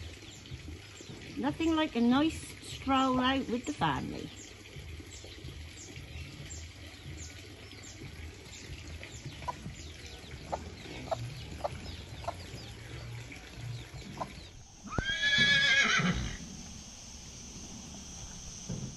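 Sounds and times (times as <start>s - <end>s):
chicks peeping: 5.2s - 14.6s
hen clucking: 8.8s - 14.6s
horse whinnying: 14.8s - 16.4s.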